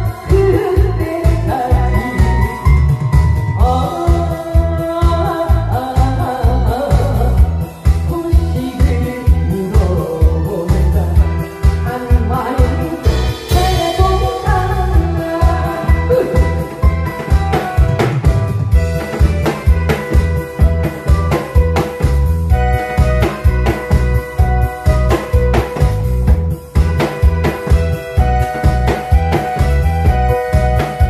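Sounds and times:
woman singing into microphone: 0.0 - 18.1
disco backing track: 0.0 - 31.0
drum kit playing: 0.0 - 31.0
cymbal crash: 13.0 - 14.6.

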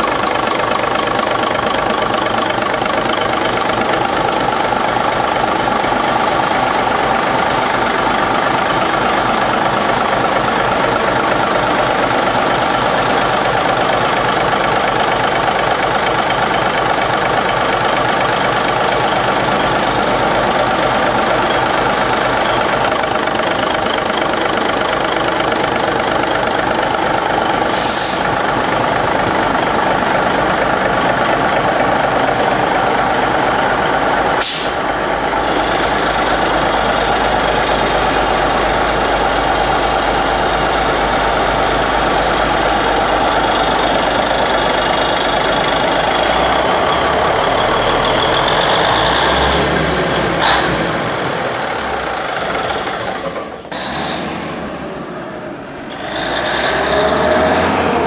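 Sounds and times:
diesel engine idling: 0.0 - 57.6
rising and falling tone: 53.6 - 58.0.

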